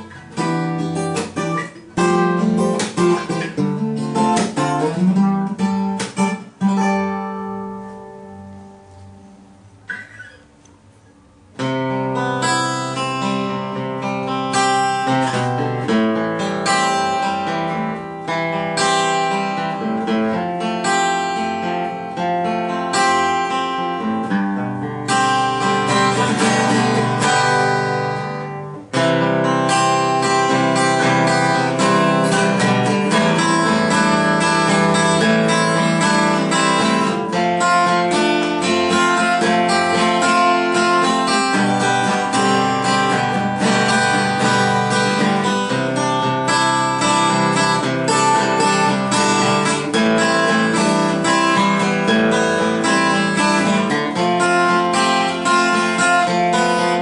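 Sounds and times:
acoustic guitar plucked and strummed: 0.0s - 57.0s.

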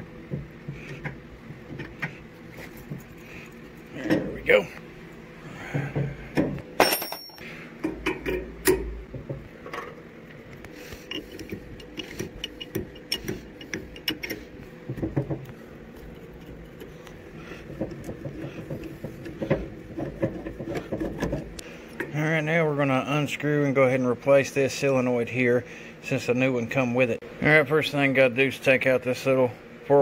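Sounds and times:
faint steady hum: 0.0s - 30.0s
metal hand tools clinking: 6.8s - 7.4s.

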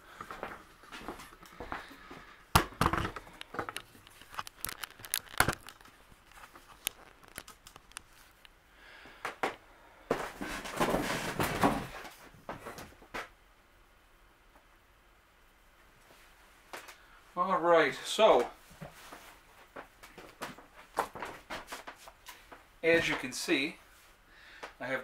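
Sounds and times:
rustling and crinkling: 0.1s - 13.4s, 18.2s - 24.8s.

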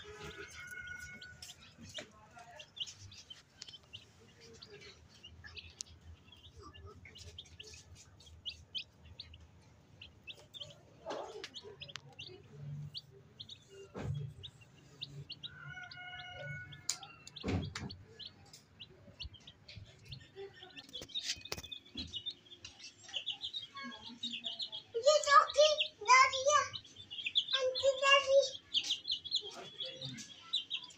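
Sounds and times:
chicks peeping: 0.0s - 30.9s.

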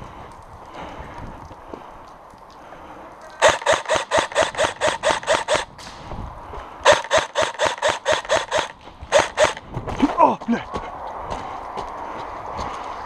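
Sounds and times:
airsoft rifle rapid shots: 3.4s - 5.7s, 6.9s - 9.6s.

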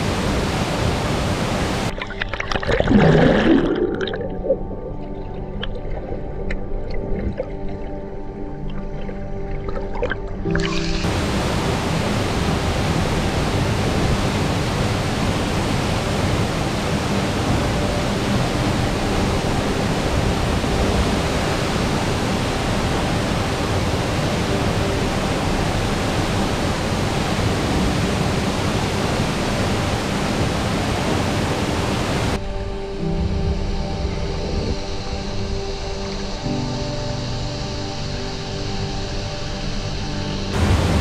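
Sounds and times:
waterfall rushing: 0.0s - 5.8s, 10.4s - 41.0s.

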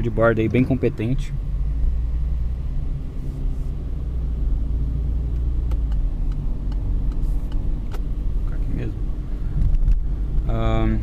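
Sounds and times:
car engine and tyres rumbling: 0.0s - 11.0s
light ticks: 5.3s - 8.1s.

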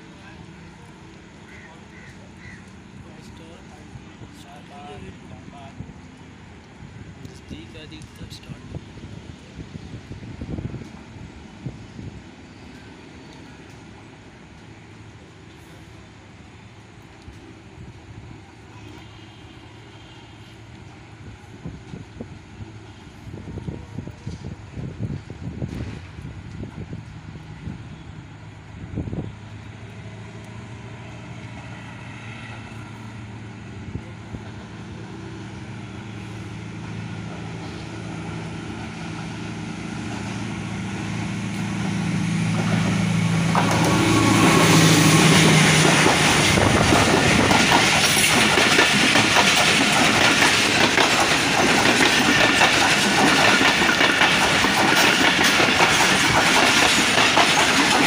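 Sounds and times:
locomotive engine hum: 0.0s - 58.0s
train wheels clickety-clack: 41.0s - 58.0s.

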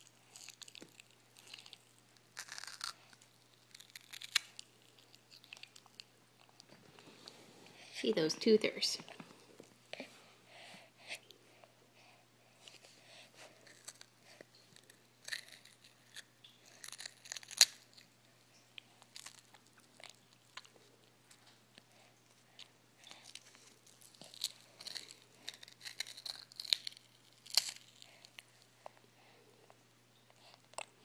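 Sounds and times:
baby chewing with wet mouth smacks: 0.0s - 7.4s, 12.6s - 29.0s, 29.6s - 31.0s.

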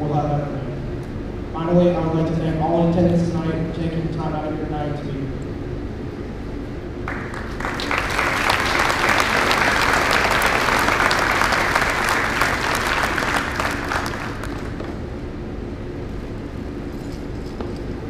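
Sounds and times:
audience applause: 7.1s - 15.0s.

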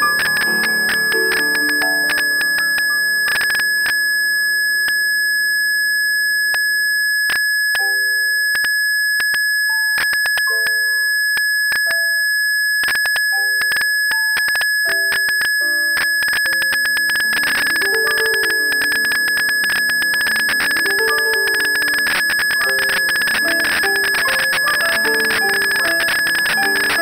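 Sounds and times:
steady high-pitched tone: 0.0s - 7.0s, 12.8s - 27.0s.

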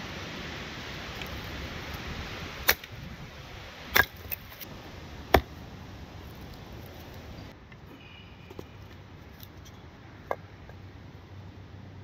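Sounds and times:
steady hiss: 0.0s - 9.3s.

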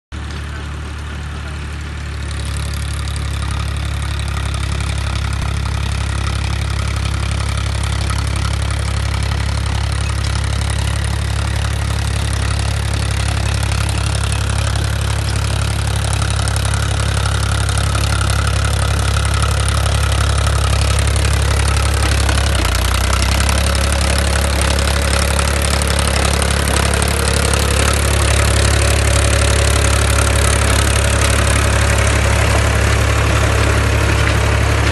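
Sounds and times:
tractor diesel engine under load: 0.1s - 34.9s.

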